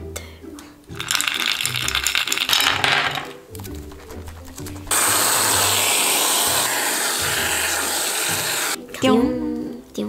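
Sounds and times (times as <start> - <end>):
background music: 0.0 - 10.0
ice cubes clinking: 0.9 - 5.8
aerosol can spraying hiss: 4.7 - 8.8.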